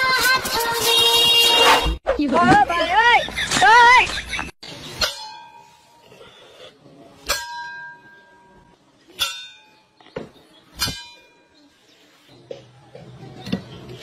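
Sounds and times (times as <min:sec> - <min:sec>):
metal bowl clanging: 0:04.9 - 0:06.0.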